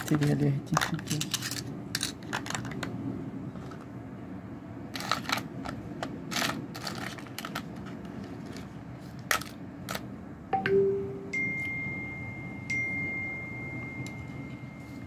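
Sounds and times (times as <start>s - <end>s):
small parts clicking in plastic box: 0.0s - 2.9s, 5.0s - 10.1s
steady low hum: 0.0s - 15.0s.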